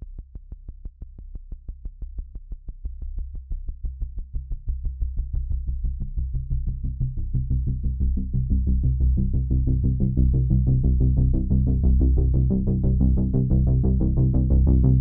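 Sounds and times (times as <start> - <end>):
low synthesizer bass: 7.5 - 15.0.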